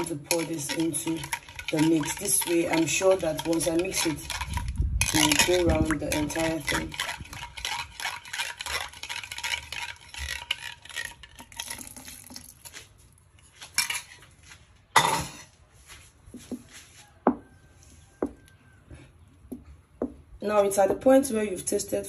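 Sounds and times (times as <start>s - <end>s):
metal spoon scraping ceramic bowl: 0.0s - 11.8s
stirring thick batter: 0.0s - 13.0s.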